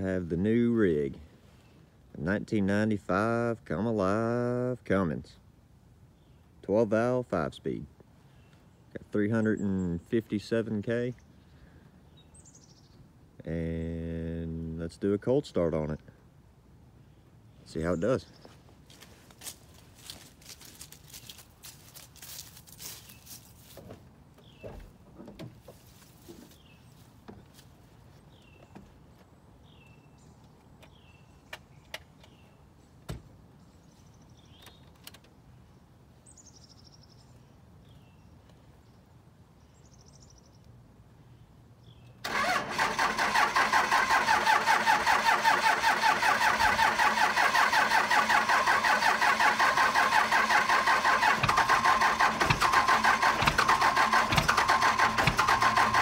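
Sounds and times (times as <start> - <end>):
bird chirping: 11.1 - 13.1, 24.4 - 24.9
footsteps: 18.4 - 24.1
diesel engine starting and running: 42.2 - 56.0.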